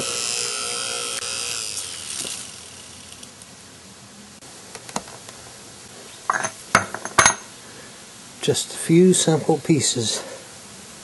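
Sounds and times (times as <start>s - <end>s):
electric motor winding down: 0.0s - 3.4s
metal parts clinking on concrete: 6.3s - 7.5s.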